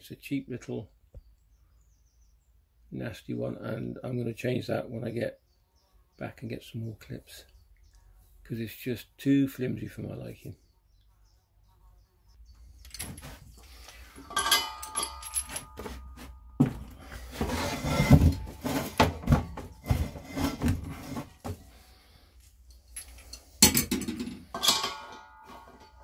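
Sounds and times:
metallic clicks and clinks: 0:12.8 - 0:13.4, 0:14.2 - 0:16.1, 0:22.7 - 0:26.0.

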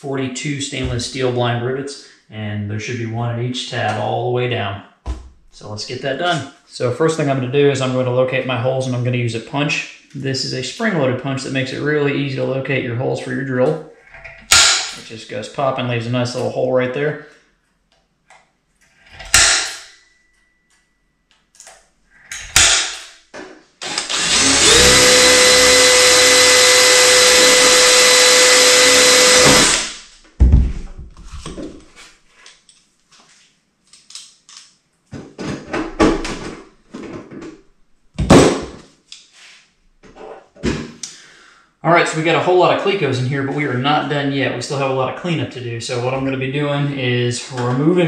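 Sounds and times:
cordless drill drilling metal: 0:23.8 - 0:30.1.

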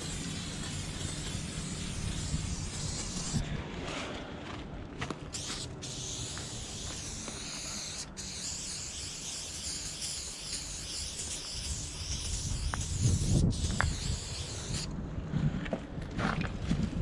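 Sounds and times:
spray paint can hissing: 0:00.0 - 0:03.4, 0:05.3 - 0:14.9.

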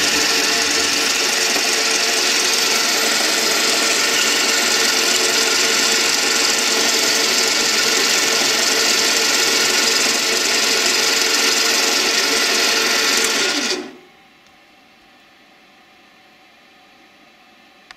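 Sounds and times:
metal lathe running: 0:00.0 - 0:14.0.

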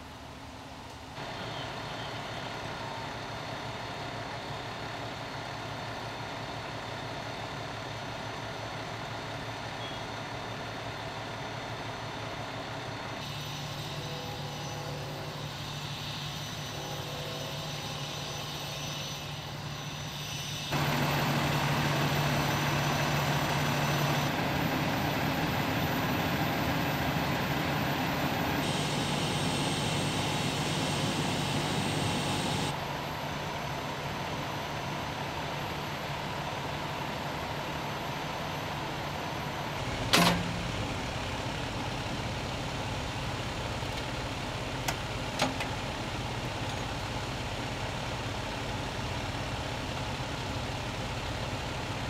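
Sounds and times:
engines droning: 0:10.9 - 0:44.0.

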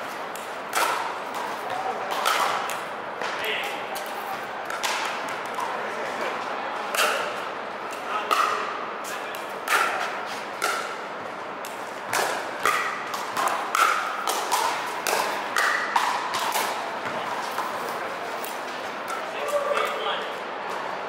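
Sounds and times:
pickleball popping off paddles: 0:11.6 - 0:17.7.

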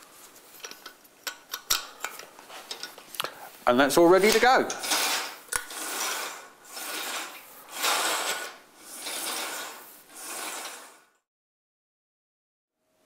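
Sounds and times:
curtain carriers rolling on track: 0:04.2 - 0:11.2.

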